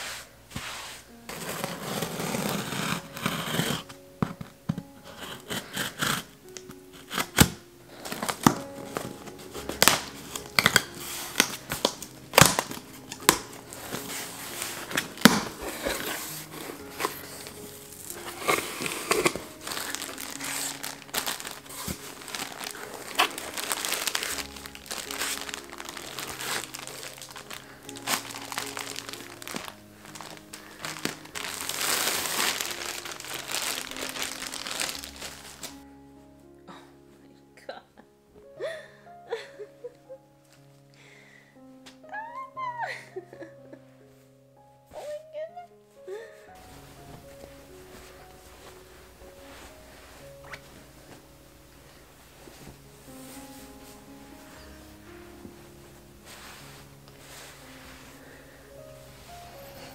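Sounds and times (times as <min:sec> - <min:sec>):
background music: 0:00.0 - 0:59.9
packaging crinkling and rustling: 0:01.3 - 0:35.8.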